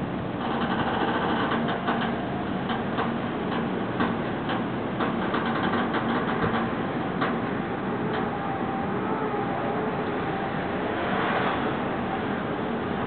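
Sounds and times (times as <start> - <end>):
knocks and clatter: 0.4 - 7.6
machine hum: 6.7 - 13.0.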